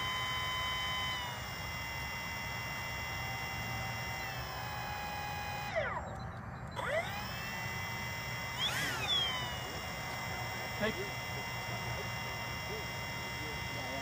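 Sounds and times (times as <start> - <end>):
electric ducted fan whining: 0.0 - 14.0.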